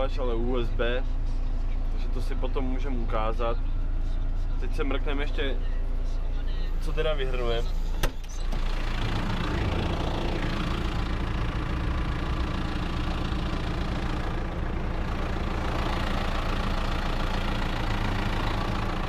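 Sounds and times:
farm machine engine running: 8.4 - 19.0.

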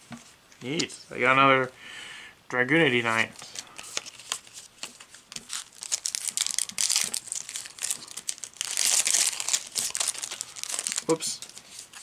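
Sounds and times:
foil pack crinkling and tearing: 3.5 - 12.0.

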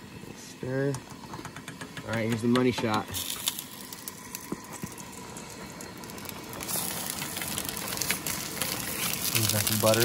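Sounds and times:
steaming pot: 0.0 - 10.0
stove burners hissing: 0.0 - 10.0
sausage sizzling in frying pan: 2.8 - 10.0.

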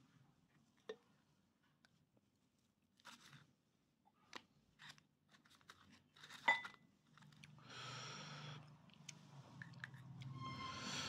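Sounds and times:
chewing and crunching food: 7.0 - 7.7, 8.6 - 10.3.

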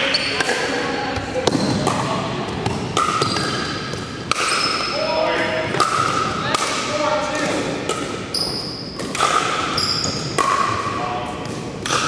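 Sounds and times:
paddles striking plastic balls: 5.7 - 8.2, 9.0 - 12.0.

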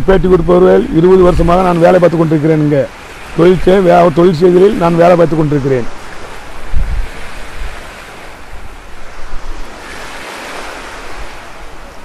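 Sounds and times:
wind buffeting microphone: 4.8 - 12.0.

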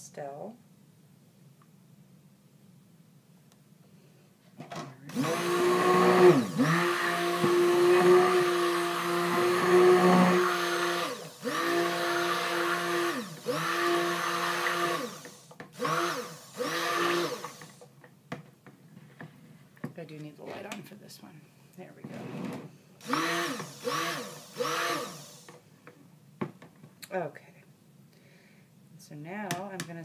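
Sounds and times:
stick blender whirring: 5.1 - 17.9, 22.2 - 25.6.

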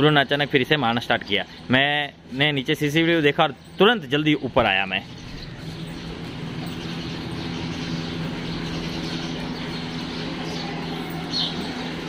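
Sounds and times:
machine humming: 4.8 - 12.0.

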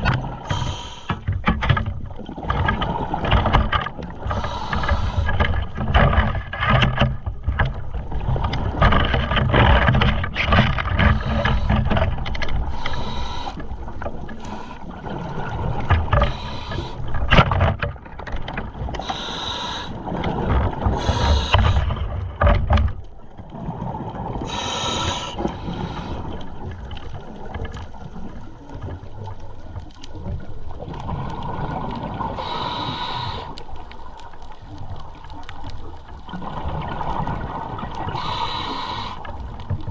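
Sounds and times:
underwater water rush and rumble: 0.0 - 39.9.

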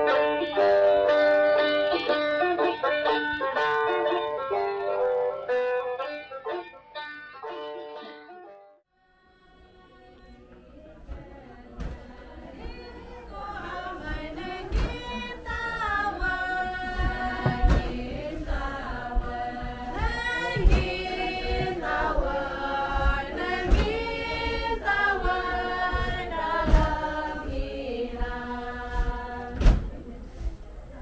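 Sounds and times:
group chanting in unison: 11.1 - 30.1
knock keeping time: 13.6 - 29.2.

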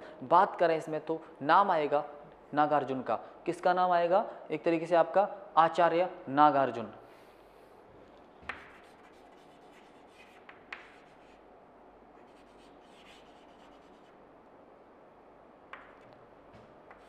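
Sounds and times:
chalk tapping on board: 8.4 - 11.3
chalk scratching on chalkboard: 8.4 - 11.4, 12.2 - 14.2.

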